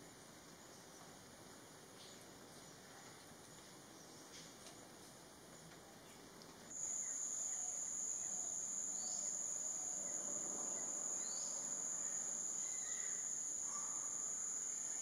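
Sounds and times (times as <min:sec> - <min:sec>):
insects droning: 0:06.7 - 0:15.0.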